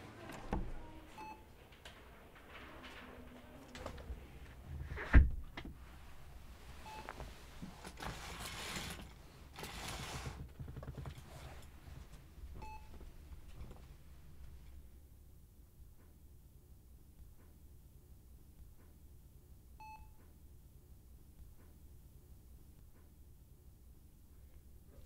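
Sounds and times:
soft rustling: 0:05.8 - 0:09.0.

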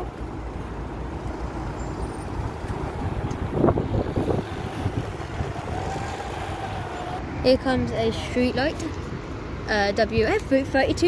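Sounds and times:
diesel bus engine rumble: 0:00.0 - 0:11.0
wind on microphone: 0:02.3 - 0:07.3.

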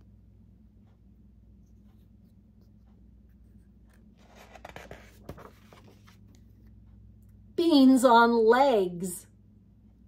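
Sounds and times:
faint low hum: 0:00.0 - 0:10.0
book page turning: 0:03.9 - 0:06.5.

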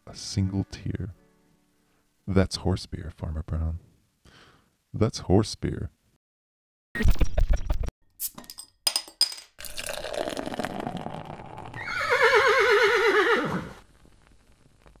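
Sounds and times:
horse whinnying: 0:11.4 - 0:13.8.

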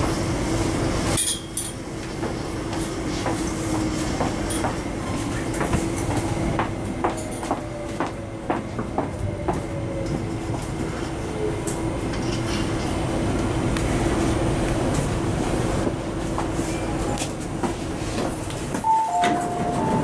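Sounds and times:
train wheels rumbling on track: 0:00.0 - 0:20.0
two-note electronic chime: 0:18.9 - 0:20.0.

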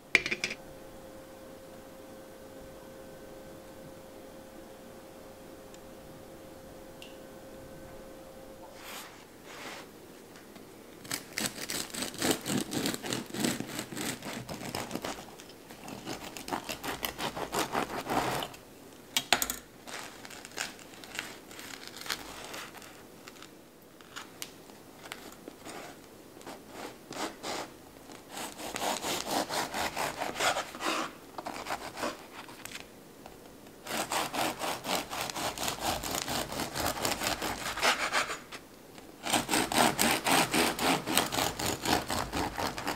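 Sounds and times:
bread knife sawing through bread: 0:11.1 - 0:18.6, 0:28.3 - 0:32.4, 0:33.8 - 0:38.6, 0:39.2 - 0:42.9.

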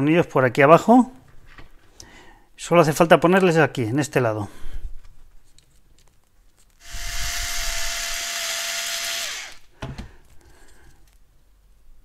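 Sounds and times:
drill-driver driving screw: 0:06.8 - 0:09.7.

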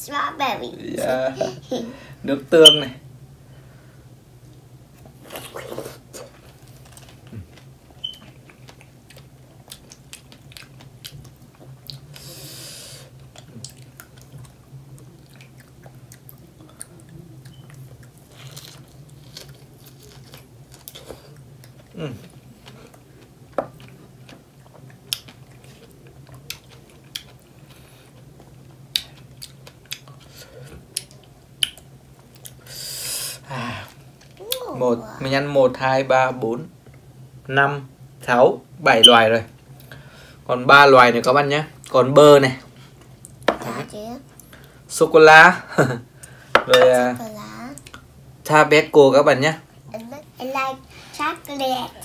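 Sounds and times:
steady low hum: 0:00.0 - 0:52.0
people chewing strawberries: 0:05.1 - 0:34.6.

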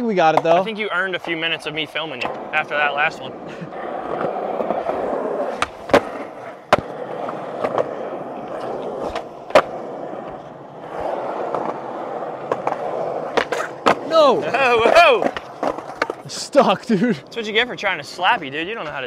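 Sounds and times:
skateboard wheels rolling: 0:00.0 - 0:19.0
skateboard clacks and knocks: 0:00.3 - 0:02.9, 0:03.7 - 0:16.3.

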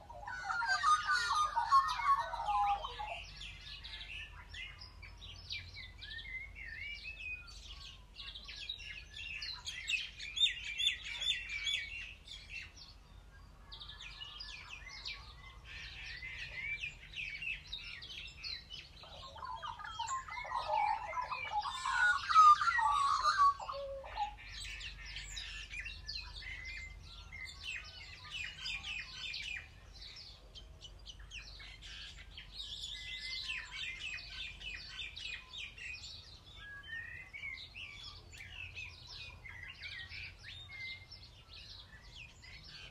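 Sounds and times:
lower-pitched bird calls: 0:00.0 - 0:05.2, 0:13.7 - 0:29.9
small birds chirping: 0:00.0 - 0:42.9.

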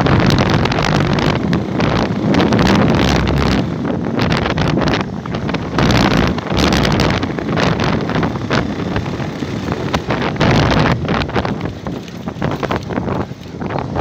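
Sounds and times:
motorcycle running: 0:00.0 - 0:14.0
wind buffeting microphone: 0:00.0 - 0:14.0.

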